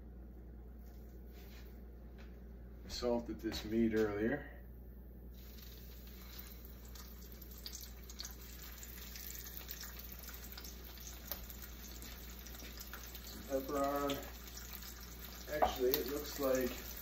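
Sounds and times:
steak sizzling in a frying pan: 5.4s - 17.0s.

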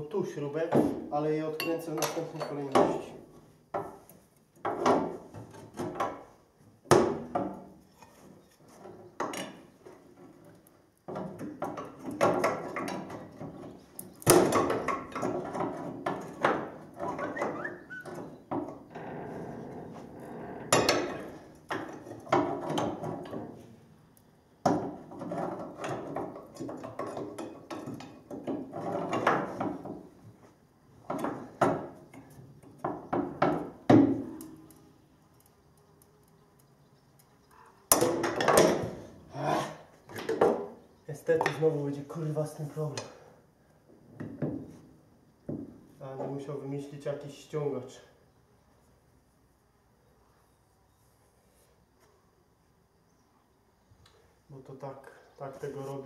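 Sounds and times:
tools clanking on metal: 1.6s - 3.1s, 11.1s - 18.8s, 20.7s - 23.6s, 24.8s - 29.9s, 37.9s - 39.0s.

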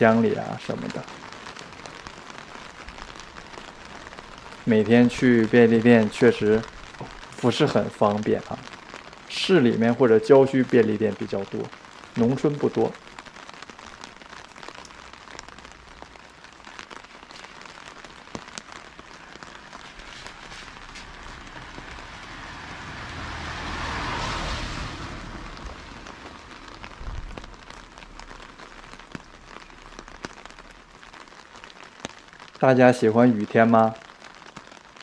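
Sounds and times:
light rain ticking: 0.0s - 35.0s
car tyres hissing on wet road: 19.2s - 29.8s.

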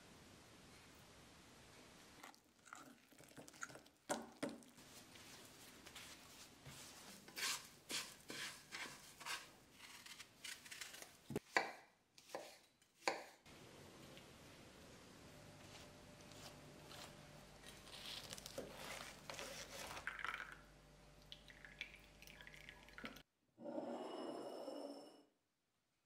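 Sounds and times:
spatula scraping frying pan: 7.2s - 9.5s.

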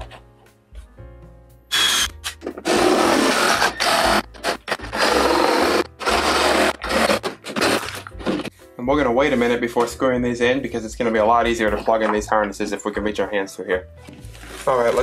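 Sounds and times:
background music: 0.0s - 15.0s
oscillating multi-tool cutting plastic: 2.7s - 7.9s.

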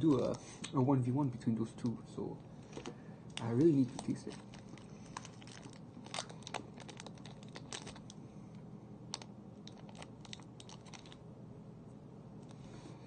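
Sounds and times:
low steady hum: 0.0s - 13.0s
foil wrapper crackling: 2.6s - 8.2s, 9.1s - 11.2s.

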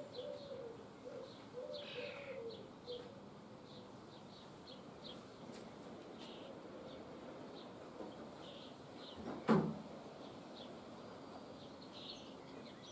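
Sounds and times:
low wavering cooing: 0.0s - 3.1s
young starlings chirping: 0.0s - 12.9s
raspy bird call: 1.6s - 2.6s.

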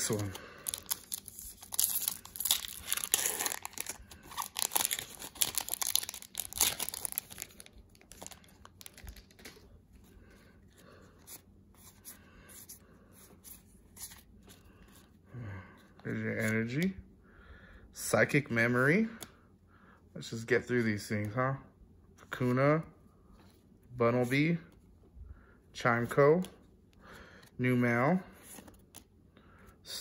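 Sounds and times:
cards rustling: 0.0s - 10.1s
foil wrapper tearing and crinkling: 0.1s - 9.6s.

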